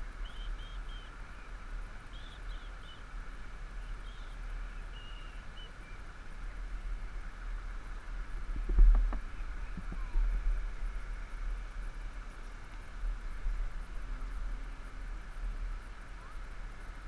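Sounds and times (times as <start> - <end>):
steady outdoor hiss: 0.0 - 17.0
wind rumble on microphone: 0.0 - 17.0
high bird chirps: 0.2 - 1.1, 3.8 - 6.0.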